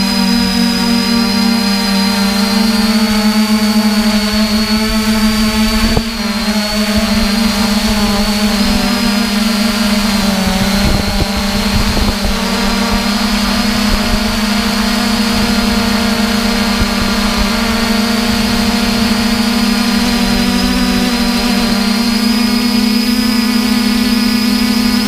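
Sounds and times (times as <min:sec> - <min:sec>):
drone propellers whining: 0:00.0 - 0:25.0.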